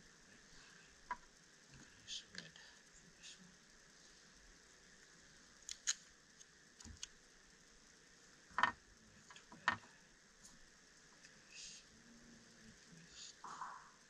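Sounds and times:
small tools clicking on stone: 5.7 - 7.1.

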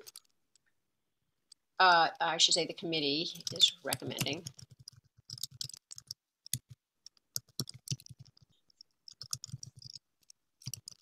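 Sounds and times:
typing on computer keyboard: 0.0 - 0.3, 3.3 - 11.0.

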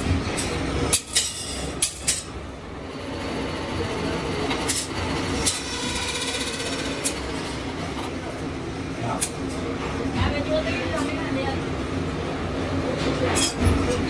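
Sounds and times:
metal lathe rumbling: 1.6 - 10.0.

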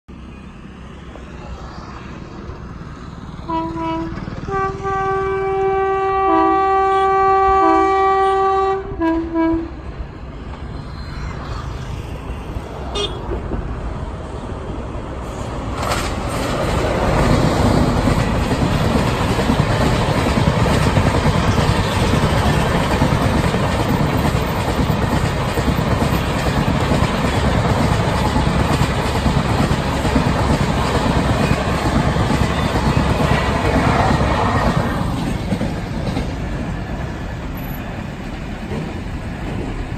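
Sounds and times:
train rumbling past: 0.1 - 39.9
locomotive horn blasts: 3.5 - 9.8, 12.9 - 13.2.

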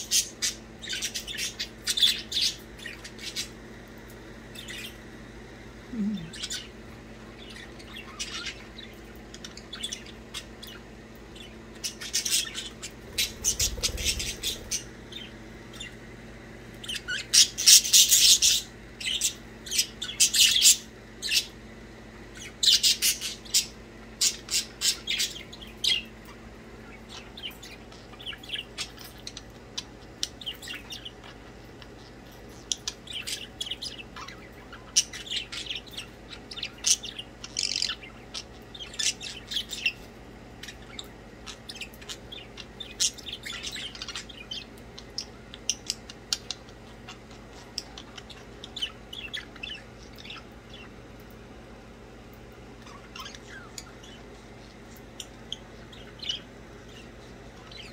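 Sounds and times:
budgerigars chirping and squawking: 0.0 - 5.1, 6.0 - 16.0, 16.7 - 21.6, 22.3 - 51.3, 52.8 - 57.9.

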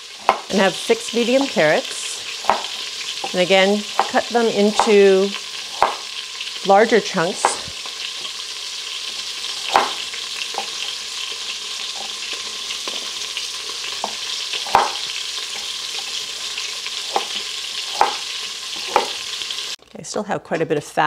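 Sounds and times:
meat sizzling in oil: 0.0 - 19.8
knife knocking on cutting board: 5.8 - 6.0, 9.7 - 10.0, 14.0 - 15.0.

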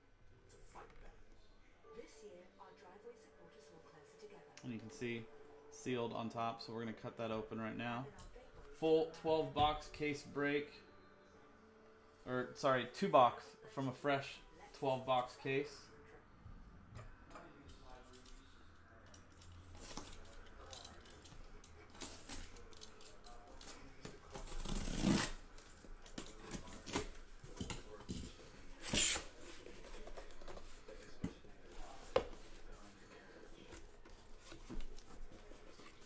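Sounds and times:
tape being cut and ripped: 24.4 - 25.4, 28.8 - 29.4.

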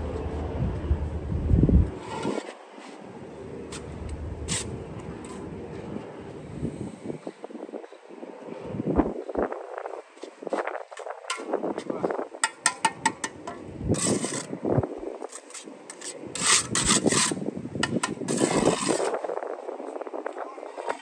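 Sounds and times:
trowel scraping wet mortar: 2.0 - 3.0, 4.4 - 5.4, 12.4 - 14.6, 15.2 - 19.2.

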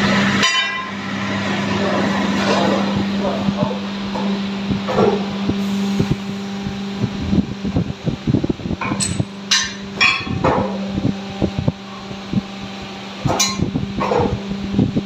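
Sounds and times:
hydraulic pump humming: 0.0 - 15.0
metallic clanks: 8.8 - 10.8, 13.3 - 14.4.

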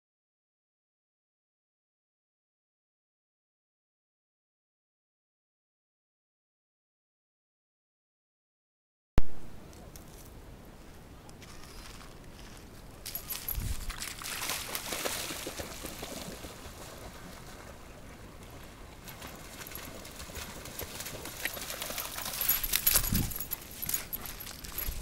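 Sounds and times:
dog splashing through water: 13.9 - 17.7.

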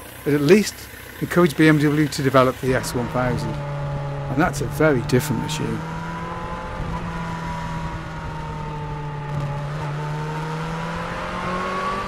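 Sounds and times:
motorcycle engine running: 0.0 - 12.0
wind and road noise: 0.0 - 12.0.

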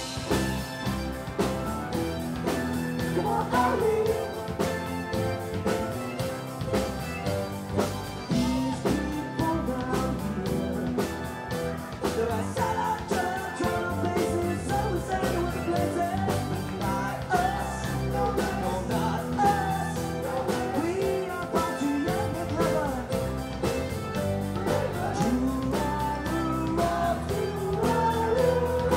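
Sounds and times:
bass: 0.0 - 28.9
drums: 0.0 - 28.9
electric guitars: 0.0 - 28.9
person singing: 0.0 - 28.9.

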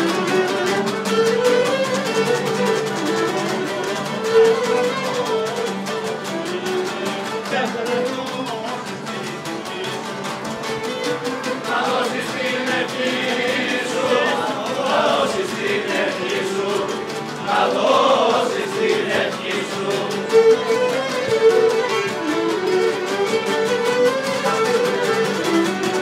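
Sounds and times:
strummed lutes: 0.0 - 26.0
men singing: 6.6 - 10.3, 11.6 - 20.5.

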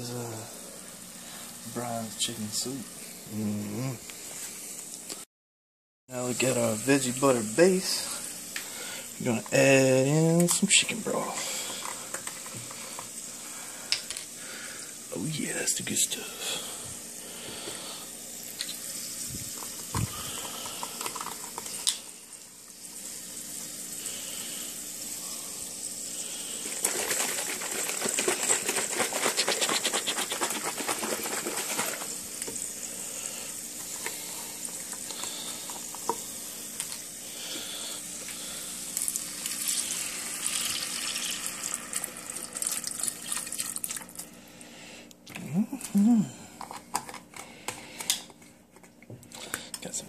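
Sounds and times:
liquid pouring and splashing: 39.0 - 44.2.

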